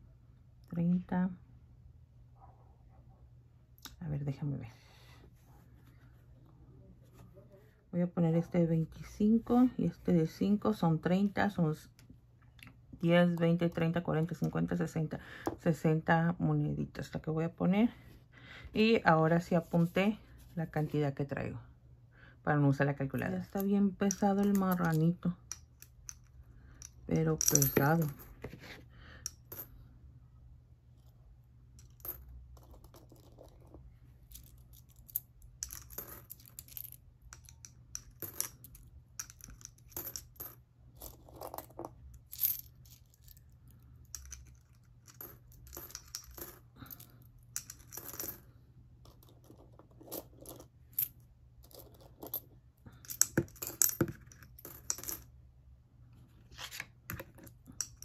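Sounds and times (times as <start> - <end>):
coins clinking into piggy bank: 24.1 - 28.3, 34.4 - 43.2, 44.1 - 48.4, 53.0 - 55.2.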